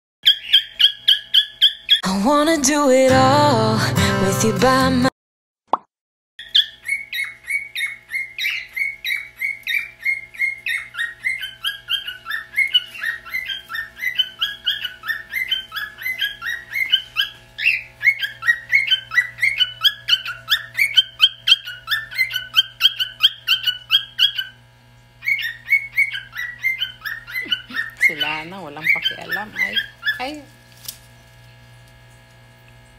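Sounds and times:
cockatiel whistling song: 0.2s - 2.0s, 6.4s - 24.6s, 25.2s - 30.4s.

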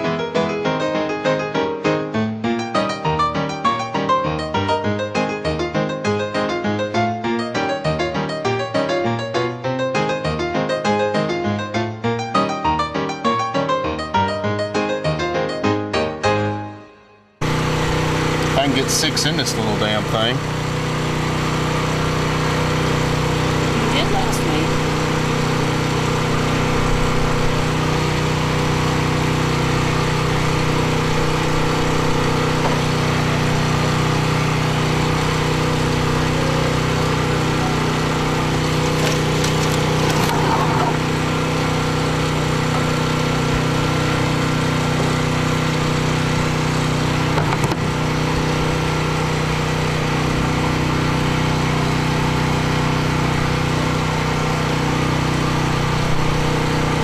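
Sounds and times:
small engine running: 17.4s - 57.0s.

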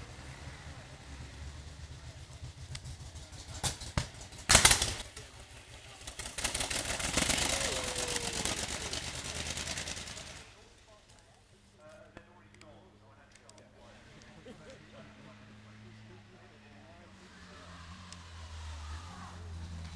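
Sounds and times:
racing car engine passing: 0.0s - 11.0s, 13.8s - 19.9s.

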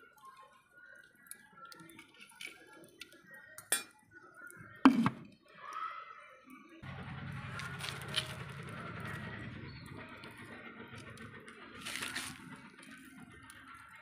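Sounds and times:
metal tongs clinking on charcoal: 1.8s - 4.0s
wood fire burning: 6.8s - 14.0s.

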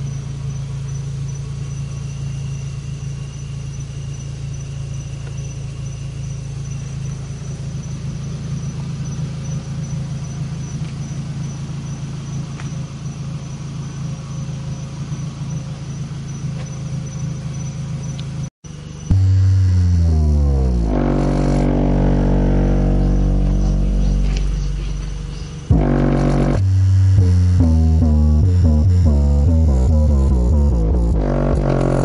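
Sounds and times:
distorted deep bass: 19.0s - 32.0s.

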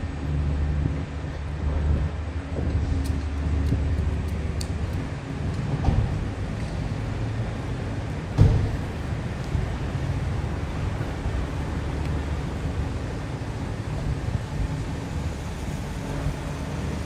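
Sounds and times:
low city rumble: 0.0s - 17.0s
dull thump: 8.3s - 9.0s.

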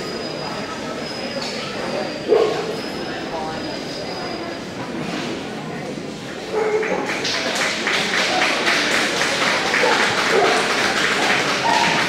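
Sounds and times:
voices: 0.0s - 12.0s
spectators clapping: 6.8s - 12.0s.

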